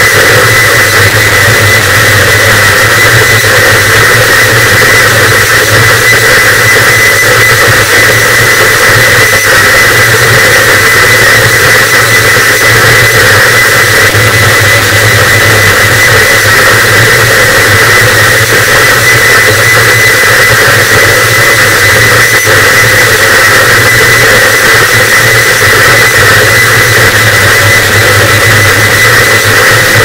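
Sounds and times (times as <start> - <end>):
dense distorted static: 0.0 - 30.0
steady low hum: 0.0 - 30.0
thin high steady tone: 0.0 - 30.0.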